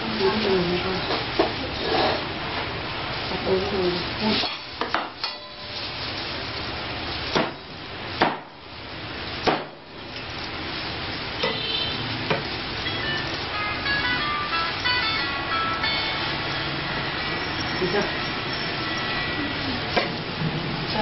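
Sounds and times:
tinkling tune: 0:12.8 - 0:19.3.

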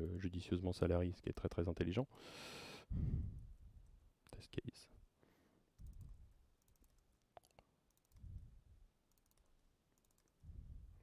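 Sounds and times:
laptop keyboard typing clicks: 0:05.8 - 0:08.2, 0:09.1 - 0:10.4.

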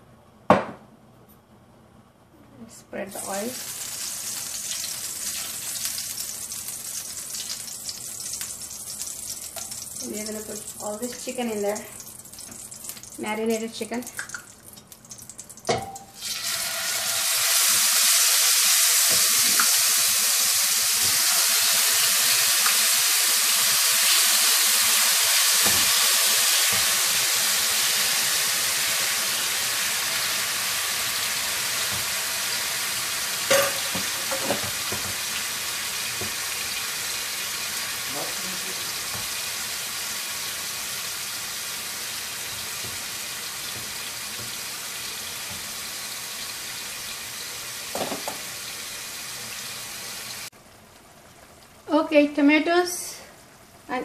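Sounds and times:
chicken sizzling in hot oil: 0:03.2 - 0:52.8
utensil clinking on pan: 0:33.5 - 0:34.6.

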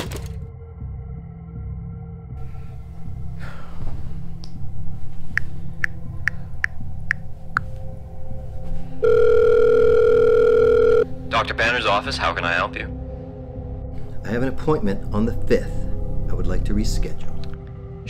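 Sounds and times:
phone keypad beeps: 0:09.0 - 0:11.0
phone ringing tone: 0:09.0 - 0:11.1.

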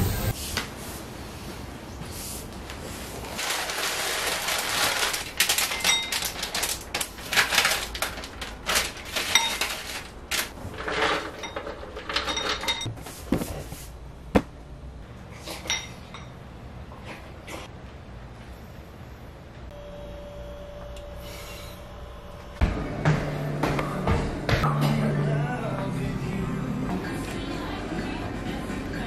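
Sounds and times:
utensils clinking against bowl: 0:05.5 - 0:06.4, 0:10.8 - 0:12.9, 0:15.6 - 0:16.4.

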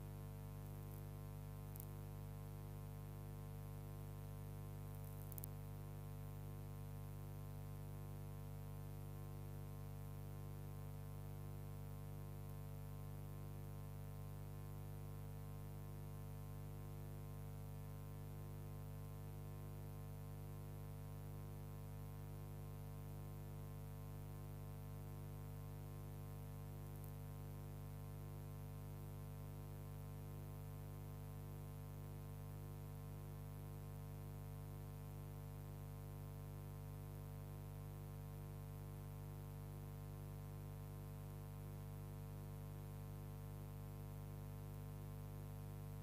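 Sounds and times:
electrical mains hum: 0:00.0 - 0:09.4.

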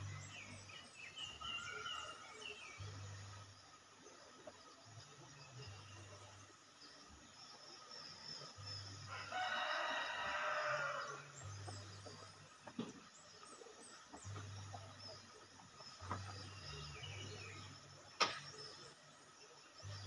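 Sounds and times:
rooster crowing: 0:09.1 - 0:11.4
sharp knock: 0:18.2 - 0:18.5.

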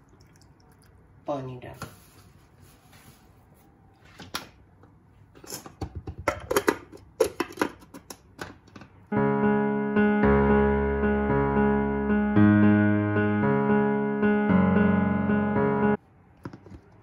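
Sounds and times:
piano music: 0:09.1 - 0:16.0.

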